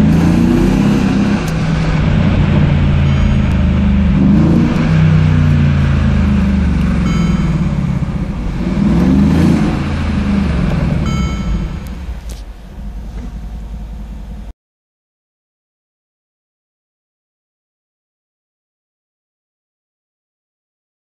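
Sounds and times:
car engine accelerating: 0.0s - 14.5s.

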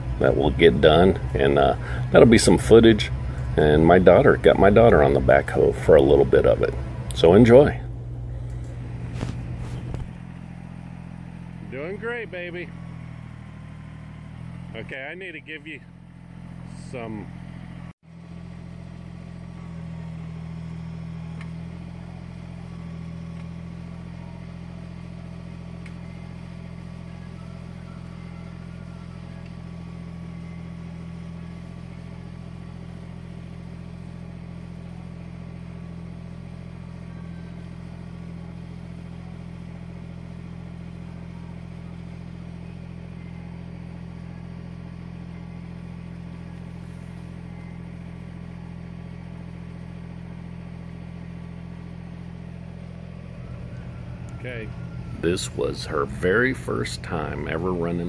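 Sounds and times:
diesel tractor engine running: 0.0s - 58.0s.

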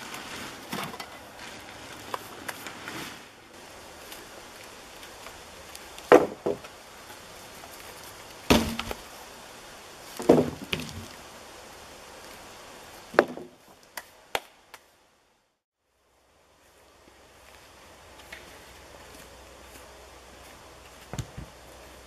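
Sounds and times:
wooden poles knocking and clattering: 6.0s - 6.8s, 10.2s - 11.1s.

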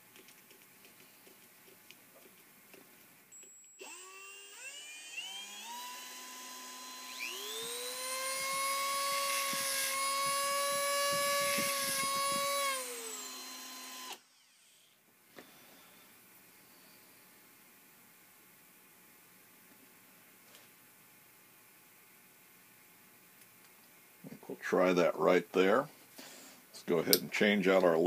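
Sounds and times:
rotary tool whine: 3.3s - 15.0s
cordless drill spinning: 3.4s - 15.0s.

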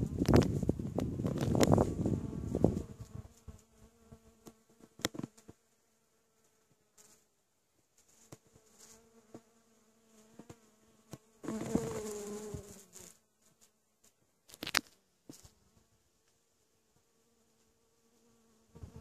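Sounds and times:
bee buzzing close to microphone: 0.0s - 7.3s, 8.2s - 13.2s, 17.0s - 19.0s
bees buzzing: 11.4s - 13.0s.

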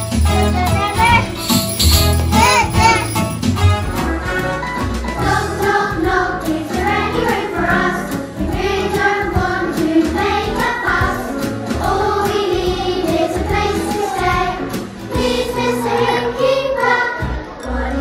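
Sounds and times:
backing music: 0.0s - 18.0s
children singing: 5.2s - 18.0s.

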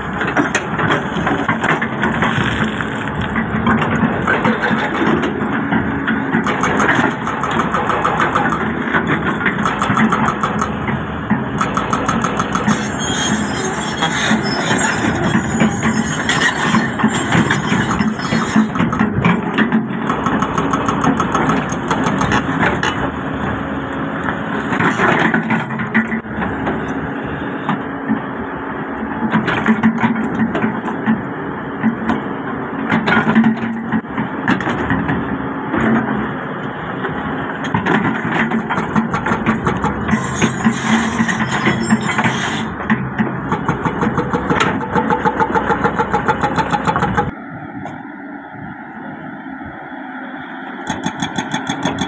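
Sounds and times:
excavator diesel engine running: 0.0s - 52.0s
bucket scraping in rock: 1.0s - 3.4s.

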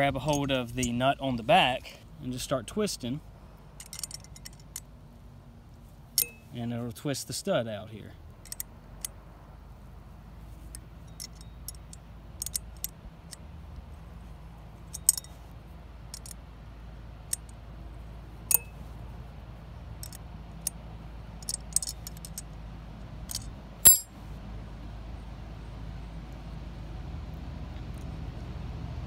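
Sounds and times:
low steady hum: 0.0s - 6.9s, 7.7s - 29.0s
wrench clicking on metal nuts: 3.8s - 4.8s, 11.1s - 12.9s, 14.9s - 15.3s, 21.4s - 22.4s, 23.3s - 24.1s.

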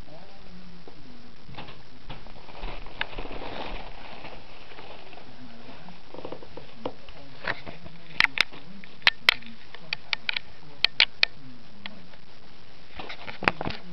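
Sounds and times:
tissue paper crinkling: 2.1s - 6.8s.

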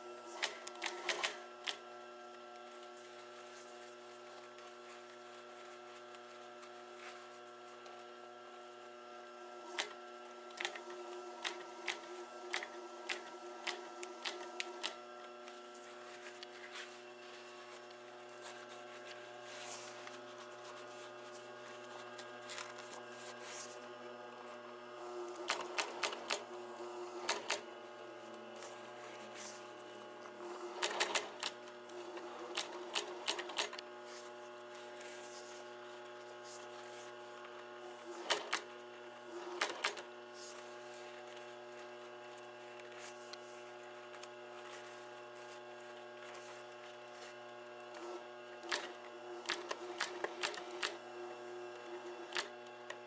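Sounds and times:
sewing machine motor hum: 0.0s - 53.0s
sewing machine needle clattering: 0.3s - 1.8s, 9.7s - 15.0s, 25.3s - 26.5s, 27.2s - 27.7s, 30.7s - 33.8s, 38.2s - 38.7s, 39.4s - 40.1s, 48.6s - 51.0s.

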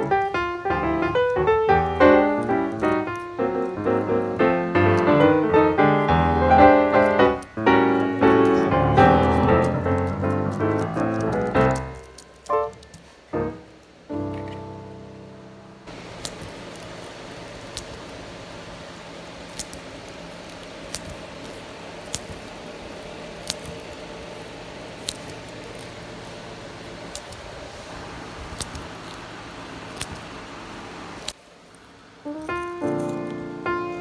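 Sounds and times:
steady background hum: 0.0s - 34.0s
sharp light clicks: 6.9s - 13.1s, 16.2s - 16.9s, 23.4s - 24.0s, 25.0s - 25.9s.

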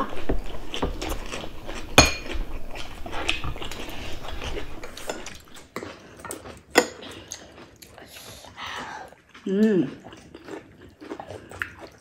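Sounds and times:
chewing: 0.0s - 12.0s.

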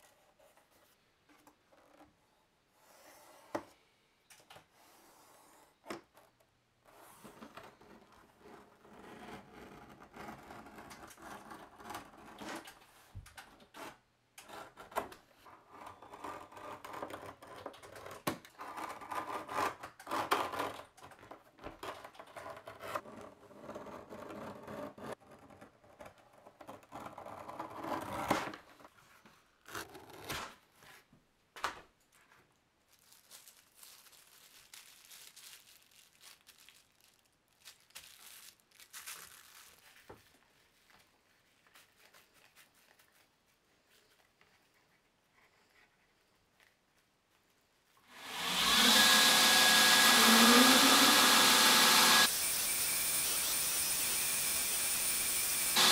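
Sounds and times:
leather rustling: 32.9s - 46.0s.

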